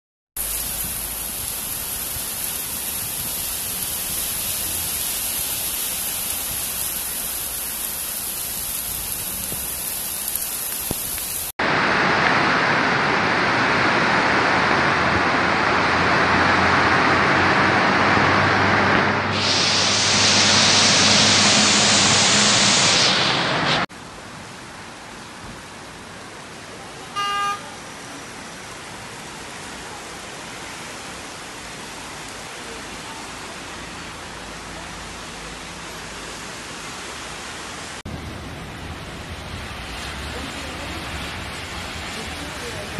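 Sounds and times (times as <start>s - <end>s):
heavy rain pouring: 0.4s - 42.9s
short beep: 27.2s - 27.6s.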